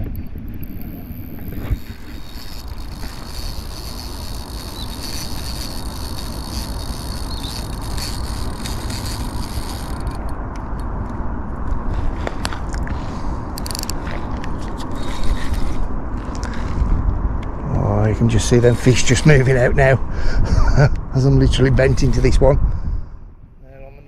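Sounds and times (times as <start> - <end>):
wind rumble on microphone: 0.0 - 24.0
sharp reel clicks: 0.4 - 10.4, 13.6 - 14.0
fishing reel drag and gears: 0.5 - 10.4, 13.6 - 16.9, 18.4 - 19.6.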